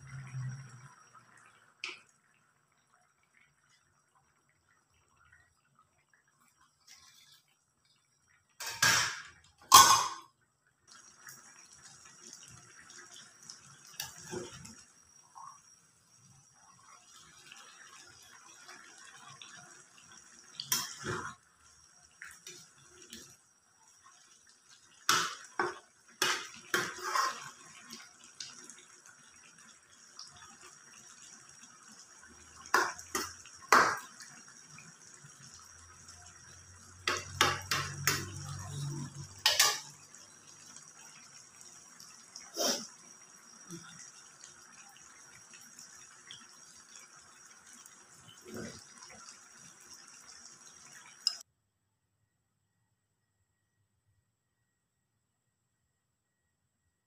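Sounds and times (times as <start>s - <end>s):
metal spatula scraping wok: 26.7s - 27.6s.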